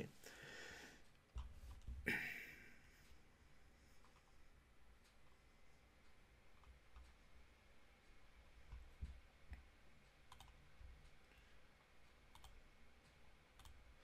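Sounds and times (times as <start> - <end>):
faint computer mouse clicks: 4.0 - 4.4, 10.3 - 10.6, 12.3 - 12.6, 13.6 - 13.8.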